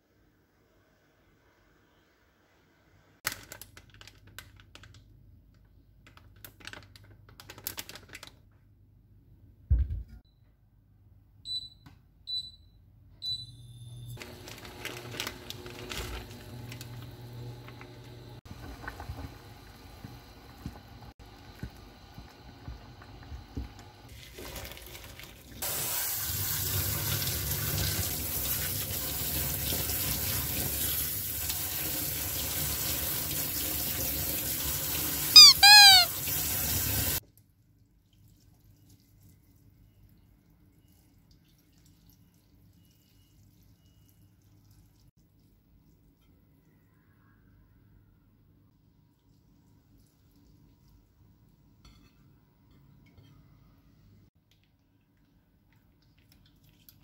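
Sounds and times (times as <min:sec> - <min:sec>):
tap water running into strainer: 0:14.3 - 0:35.3
boiling water hissing: 0:15.6 - 0:31.5
short high electronic beeps: 0:35.4 - 0:36.1.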